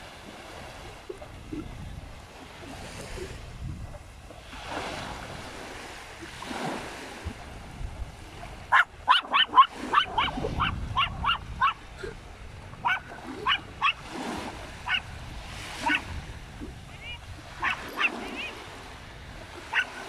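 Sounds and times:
small dog yapping: 8.7 - 11.8, 12.8 - 14.0, 15.8 - 16.1, 17.6 - 18.5, 19.7 - 20.0.

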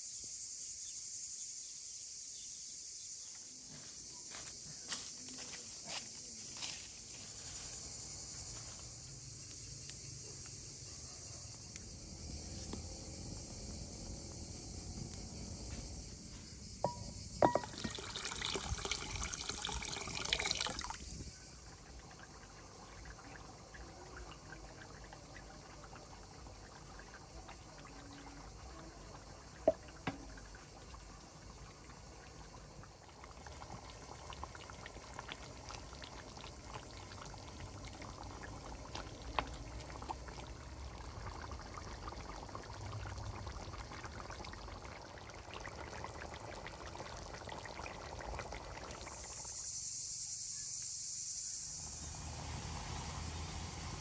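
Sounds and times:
high insect buzz: 0.0 - 21.5, 48.8 - 54.0
stew simmering: 11.4 - 49.8
liquid pouring into a pot: 16.8 - 49.7.

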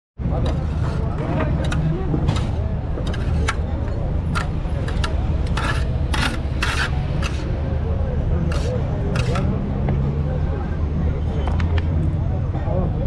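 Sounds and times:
faint distant voices: 0.2 - 13.0
low street din: 0.2 - 13.0
short irregular scrapes: 0.4 - 3.6, 4.4 - 7.6, 8.5 - 9.5.

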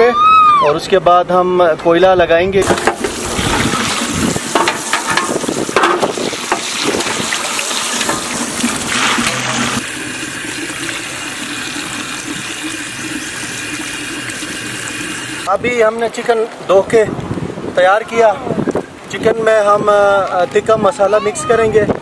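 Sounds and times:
tap water splashing on steel tray: 2.6 - 15.5
water pouring over chicken: 2.6 - 15.5.

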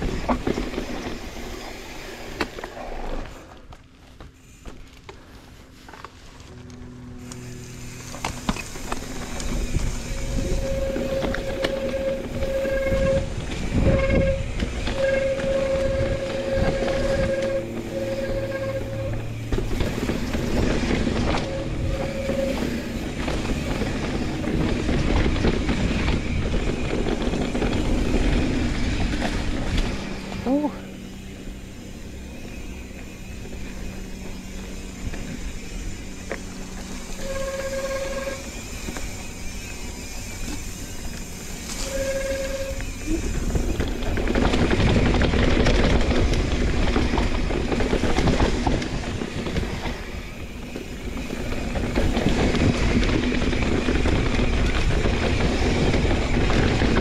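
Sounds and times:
bicycle freehub buzzing: 0.0 - 57.0
bike rattling: 0.0 - 57.0
tyres rumbling on dirt: 0.0 - 57.0.

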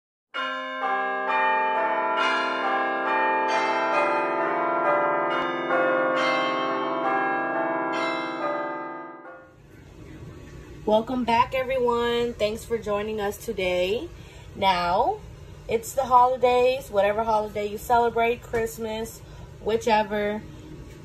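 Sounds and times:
bells ringing jingle: 0.4 - 9.5.

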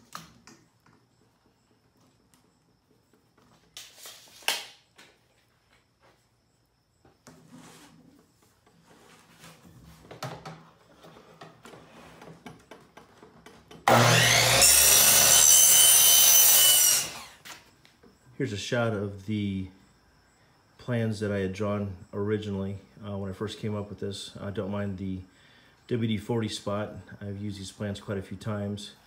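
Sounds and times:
miter saw motor whining: 13.8 - 17.4
saw blade cutting pipe: 13.9 - 17.4.

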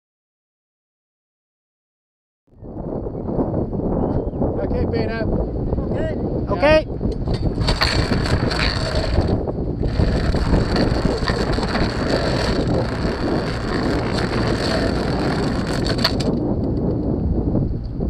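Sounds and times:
wind buffeting microphone: 2.6 - 18.0
water rushing along hull: 7.6 - 16.3.

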